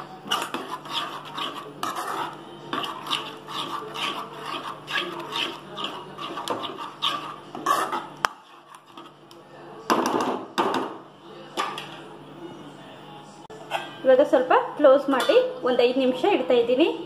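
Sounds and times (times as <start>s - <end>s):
spoon scraping metal pan: 0.0s - 9.2s.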